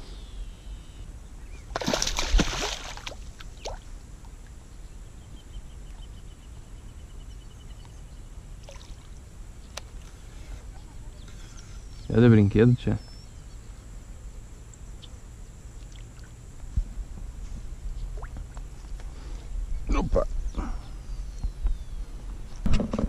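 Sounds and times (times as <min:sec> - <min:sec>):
splash on water surface: 0:01.7 - 0:03.8.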